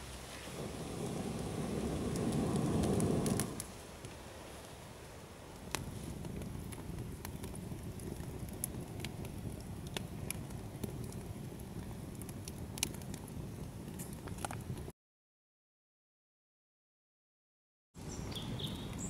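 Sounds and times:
low rumble of flames: 0.0s - 14.9s
campfire crackling and popping: 0.4s - 4.8s, 5.4s - 14.9s, 18.6s - 19.0s.

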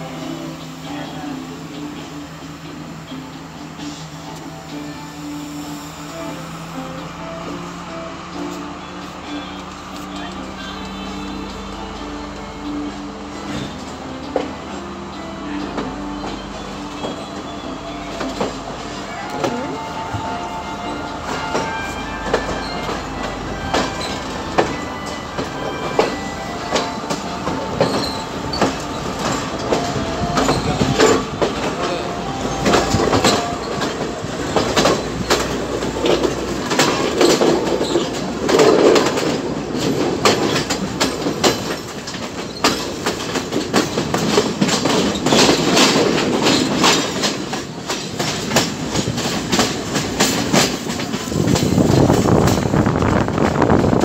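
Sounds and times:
train wheels clattering over rails: 0.0s - 54.0s
wheel squeal: 27.8s - 29.4s.

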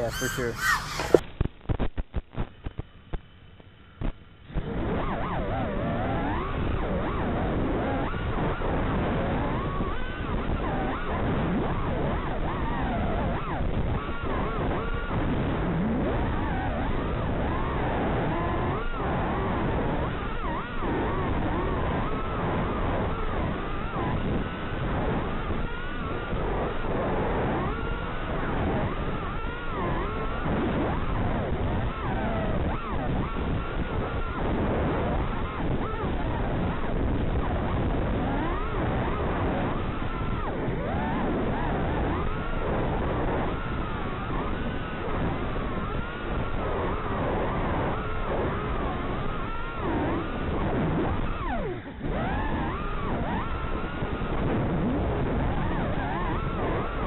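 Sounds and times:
quadcopter motors whining: 0.0s - 1.2s, 27.7s - 30.4s, 39.8s - 50.5s, 51.2s - 54.3s
steady rushing noise: 21.5s - 57.0s.

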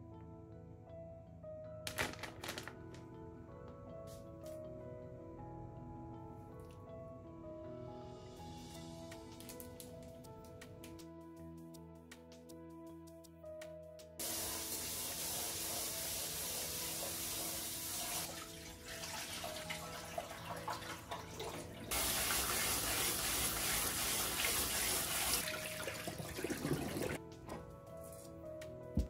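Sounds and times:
rice washed by hand: 14.2s - 27.2s
tap water running into pot: 14.2s - 27.2s.

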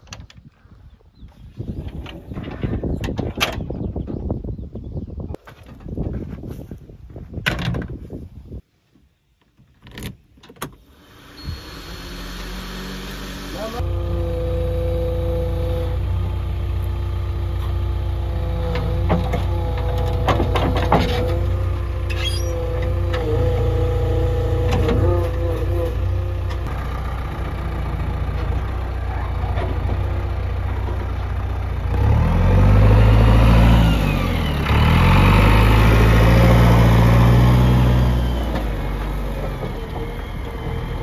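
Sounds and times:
diesel engine running and revving: 11.0s - 41.0s.

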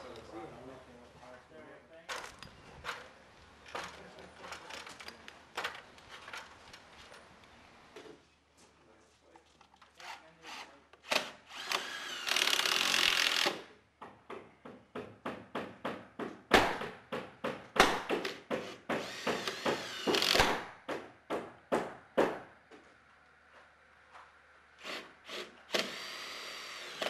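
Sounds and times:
cordless drill driving screws into metal: 10.0s - 13.7s, 18.2s - 20.7s, 24.9s - 27.0s.

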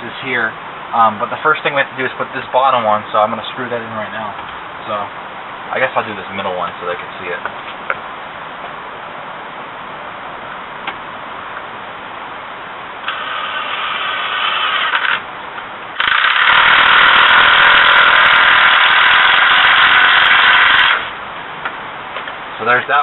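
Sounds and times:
cordless drill motor whining: 13.0s - 15.2s, 16.0s - 21.1s.

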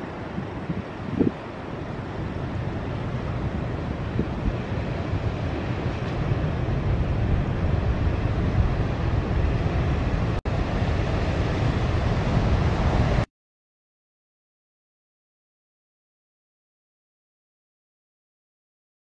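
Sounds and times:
wind buffeting microphone: 0.0s - 13.2s
ocean surf breaking: 0.0s - 13.3s.

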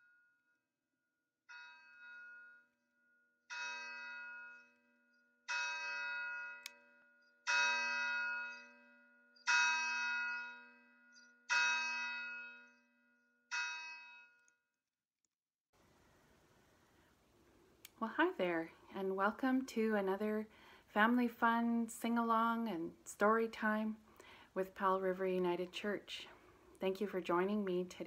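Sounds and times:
church bell tolling: 5.5s - 6.7s, 7.5s - 8.8s, 9.5s - 10.9s.

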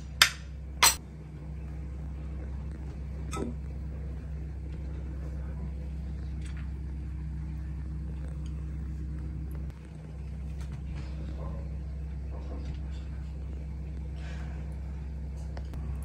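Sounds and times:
low machine hum: 0.0s - 16.0s.

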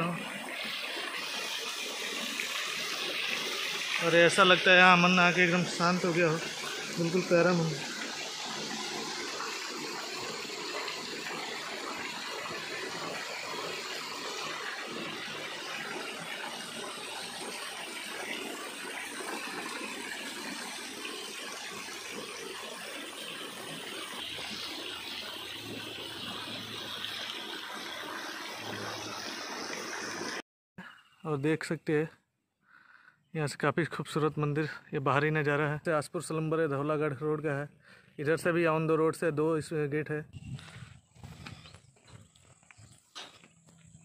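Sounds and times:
fountain water splashing: 0.0s - 30.4s.

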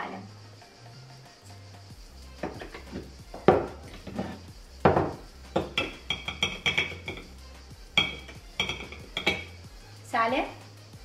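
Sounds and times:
spoon knocking on bowl: 2.4s - 4.2s, 4.8s - 7.3s, 8.0s - 9.6s
spoon scooping from canisters: 2.4s - 4.4s.

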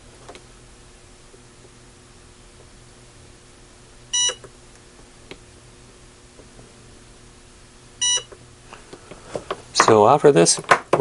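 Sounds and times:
spot welder beep: 4.1s - 4.5s, 8.0s - 8.4s.

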